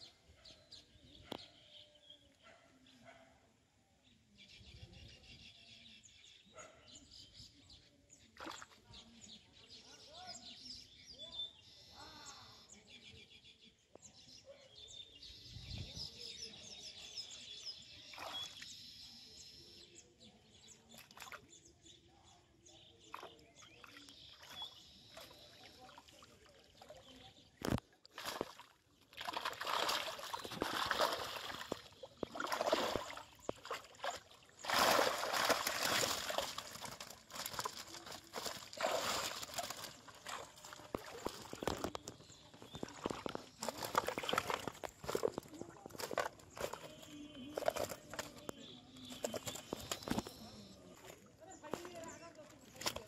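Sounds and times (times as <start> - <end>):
fish splashing in water: 27.7 - 48.4.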